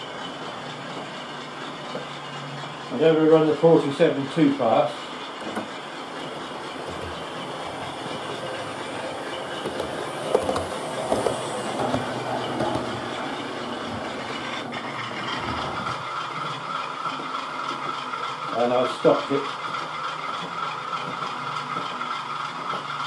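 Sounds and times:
electric motor hum: 0.0s - 23.0s
wheels clicking over rail joints: 0.0s - 23.0s.

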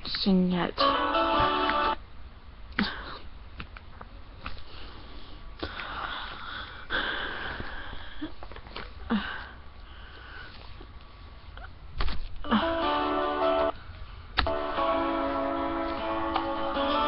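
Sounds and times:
person breathing and sniffing: 4.5s - 10.9s.

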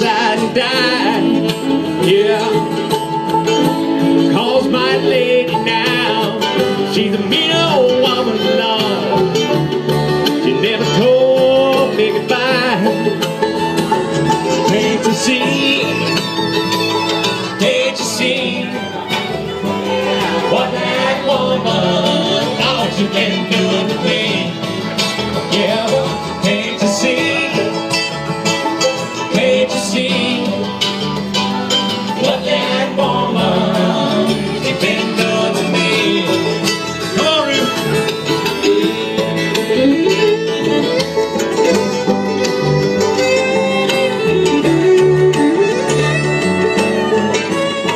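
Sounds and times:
bluegrass band playing: 0.0s - 47.9s.

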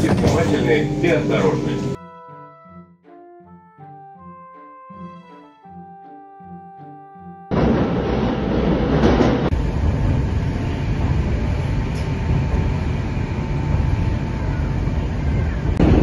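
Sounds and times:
train wheels rumbling on rails: 7.5s - 16.0s.

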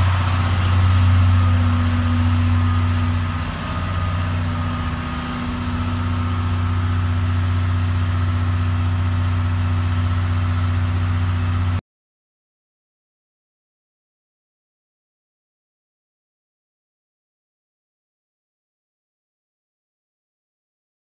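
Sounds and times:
locomotive diesel engine idling: 0.0s - 11.8s.

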